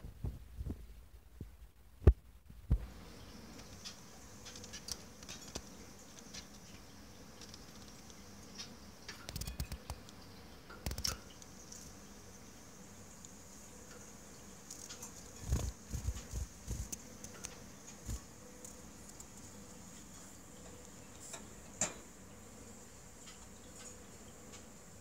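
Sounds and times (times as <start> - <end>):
faint high hiss: 0.0 - 25.0
bird tapping on wire cage: 10.7 - 11.3, 21.3 - 22.0.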